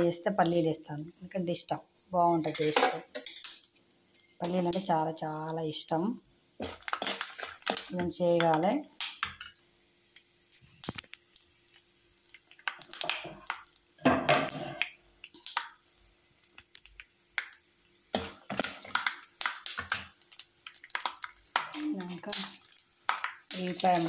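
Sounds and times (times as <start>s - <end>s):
seeds crackling in hot oil: 0.0s - 24.0s.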